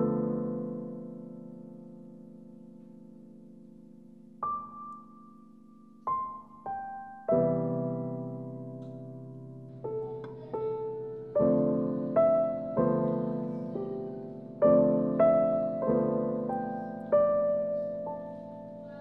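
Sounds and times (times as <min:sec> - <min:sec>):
gentle piano music: 0:00.0 - 0:19.0.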